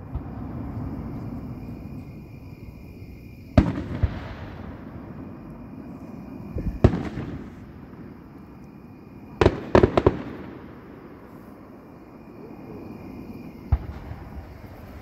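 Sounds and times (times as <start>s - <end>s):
fireworks bangs with rumbling echo: 3.5s - 5.3s, 6.6s - 8.2s, 9.4s - 11.2s, 13.6s - 15.0s.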